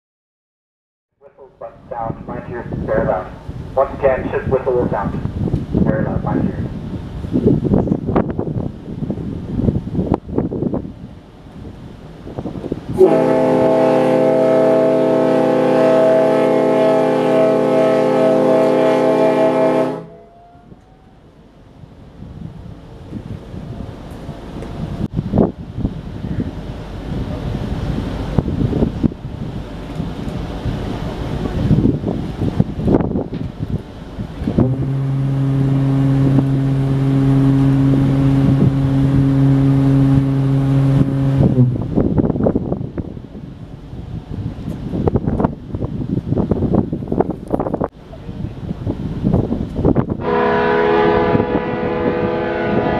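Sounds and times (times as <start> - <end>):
ship's horn long blast: 12.9 - 21.2, 34.4 - 42.8, 50.0 - 52.9.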